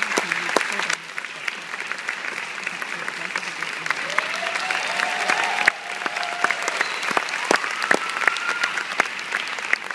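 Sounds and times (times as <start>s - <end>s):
audience applauding: 0.0s - 9.9s
drawn-out cheers: 4.0s - 9.1s.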